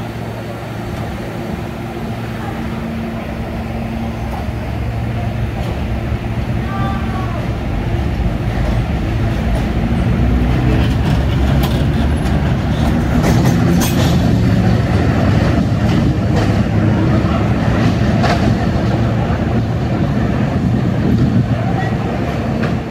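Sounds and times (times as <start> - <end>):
train rumble of motors and wheels: 0.0 - 22.9
wheels clacking over rail joints: 7.6 - 22.9.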